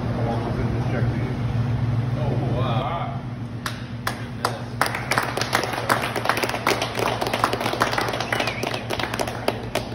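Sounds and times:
steady low hum: 0.0 - 9.9
people clapping: 3.6 - 9.9.

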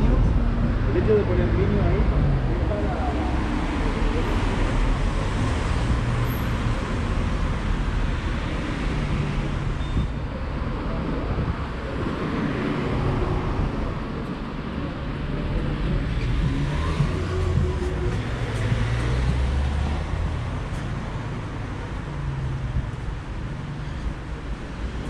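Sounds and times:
cars on the road: 0.0 - 25.0
vehicle engines running: 13.6 - 25.0.

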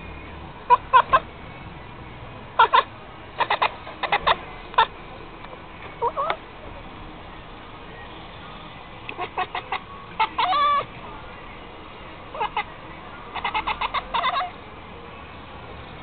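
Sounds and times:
cat chattering chirps: 2.6 - 4.9, 6.0 - 6.4, 9.1 - 10.8, 12.3 - 12.7, 13.3 - 14.6.

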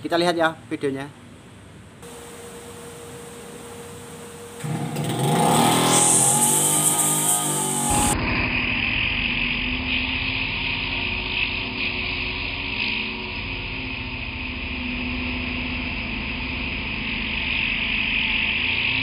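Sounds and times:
brush cutter engine running: 4.6 - 8.2.

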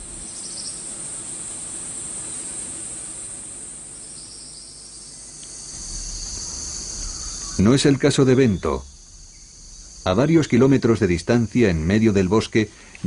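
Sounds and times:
high-pitched insect drone: 0.0 - 12.8
lower-pitched insect song: 0.0 - 13.0
soft background hiss: 0.0 - 13.0.

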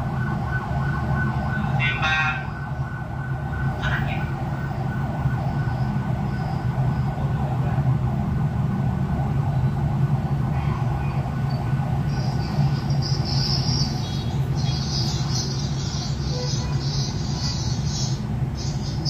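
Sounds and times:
acoustic feedback howl: 5.3 - 7.8, 9.4 - 19.0.

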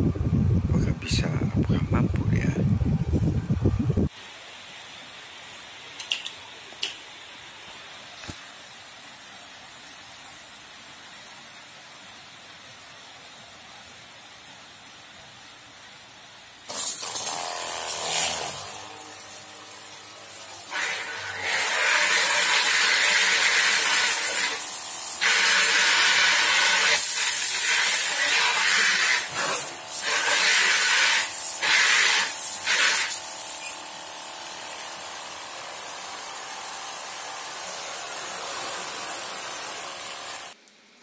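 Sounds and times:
water spraying from hose nozzle: 16.7 - 40.9.

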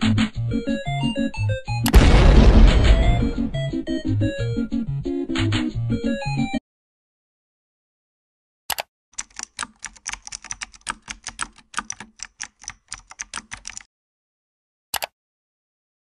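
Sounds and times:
computer keyboard typing: 8.7 - 13.9.

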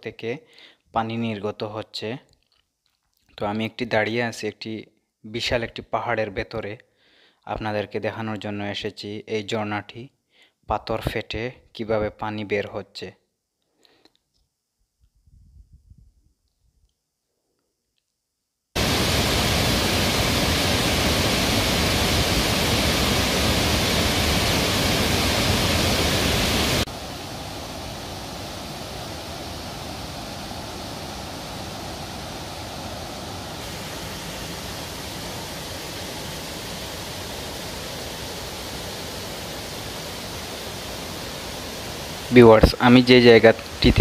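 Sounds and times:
waterfall cascading over rocks: 18.8 - 44.0.

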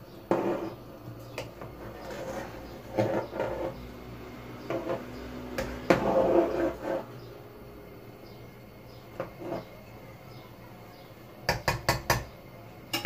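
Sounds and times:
ladle scraping metal pot: 0.2 - 4.0, 4.6 - 7.2, 9.1 - 9.8.

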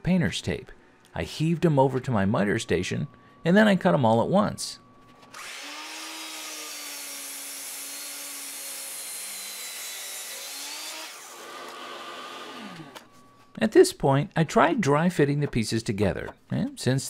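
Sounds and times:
miter saw cutting wood: 5.3 - 13.1.

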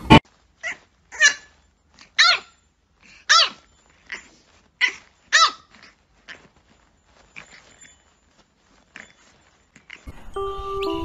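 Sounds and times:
puppy yapping: 0.1 - 7.9.

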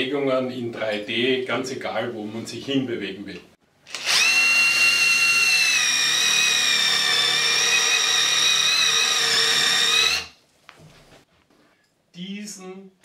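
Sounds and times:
cordless drill whining: 3.9 - 10.4.

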